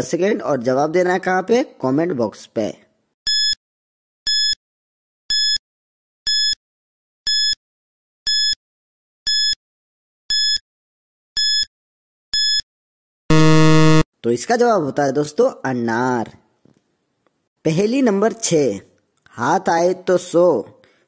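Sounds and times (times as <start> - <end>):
high-pitched electronic beeps: 13.3 - 14.0.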